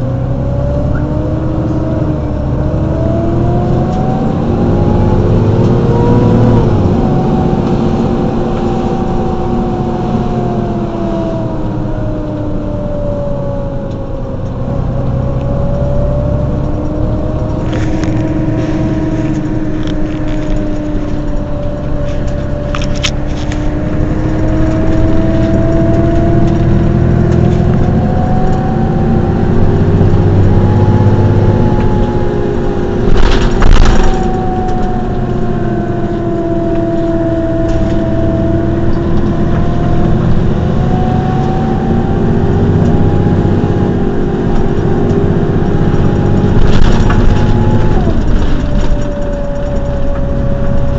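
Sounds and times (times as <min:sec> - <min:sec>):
bus engine idling with whine: 0:00.0 - 0:50.9
loud burst of noise: 0:33.0 - 0:34.3.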